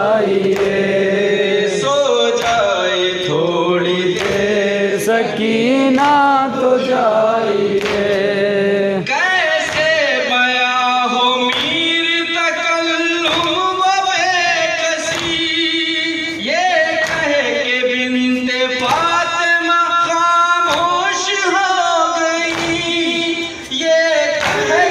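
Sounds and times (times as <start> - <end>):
men chanting a lament in unison: 0.0 - 24.9
hand slaps on chests: 0.3 - 1.0, 2.3 - 2.8, 4.2 - 4.6, 7.7 - 8.3, 9.6 - 10.5, 11.5 - 12.0, 13.2 - 13.8, 14.9 - 15.6, 16.9 - 17.5, 18.8 - 19.3, 20.7 - 21.1, 22.4 - 23.3, 24.4 - 24.9.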